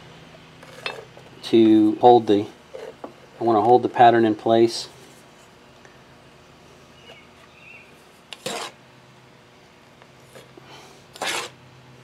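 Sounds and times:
metal scoop scraping sand: 8.4s - 8.8s, 11.2s - 11.6s.

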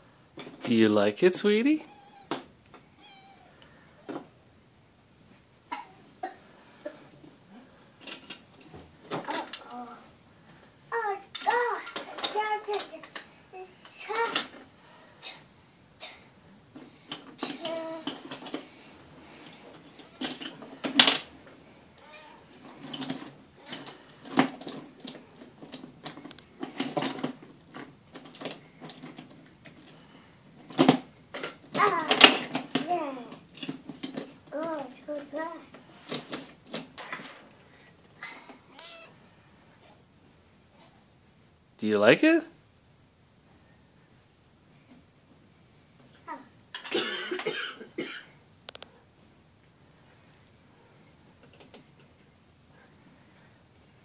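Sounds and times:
child coughing and grunting: 5.7s - 7.0s, 15.2s - 16.3s, 46.3s - 48.4s.

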